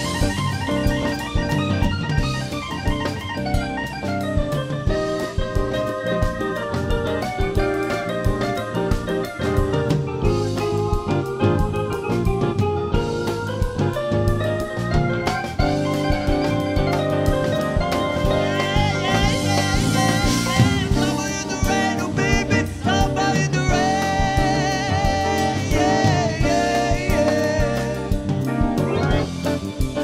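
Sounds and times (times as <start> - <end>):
live rock band playing: 0.0 - 30.0
man singing: 18.2 - 29.3.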